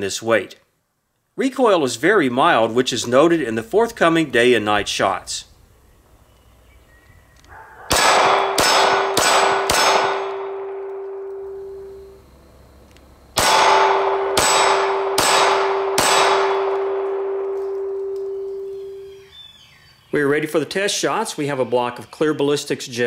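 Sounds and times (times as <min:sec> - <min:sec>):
pistol shots: 0:07.9 - 0:11.5, 0:13.4 - 0:18.4
steel target ringing: 0:07.9 - 0:12.1, 0:13.4 - 0:19.2.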